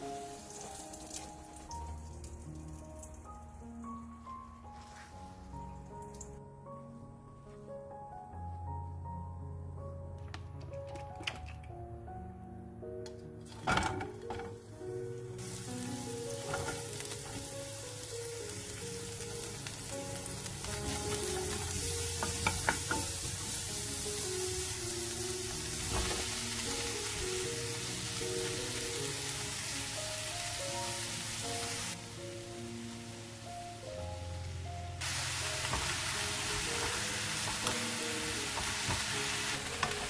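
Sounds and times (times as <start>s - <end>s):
onions sizzling in hot oil: 0.0s - 3.1s, 14.3s - 40.0s.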